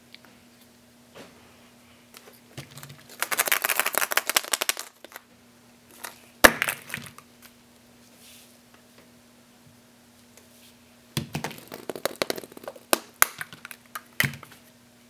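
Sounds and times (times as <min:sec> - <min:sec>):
plastic eggs clicking and clattering: 0:02.6 - 0:05.2, 0:11.4 - 0:14.4
plastic egg cracking open: 0:03.1 - 0:05.2, 0:11.4 - 0:14.4.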